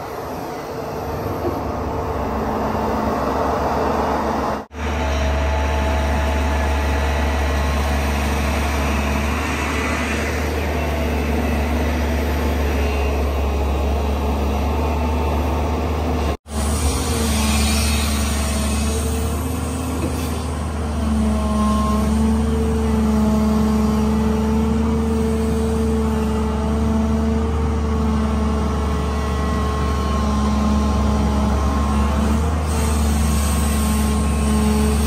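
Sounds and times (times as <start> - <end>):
excavator diesel engine and hydraulics: 0.0 - 35.0.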